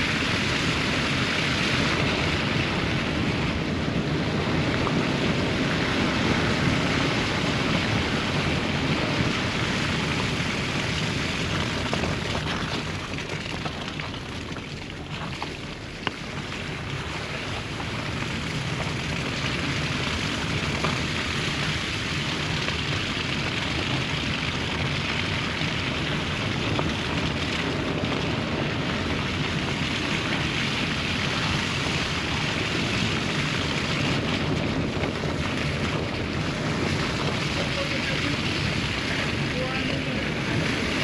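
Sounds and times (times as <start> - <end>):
car road and tyre noise: 0.0 - 41.0.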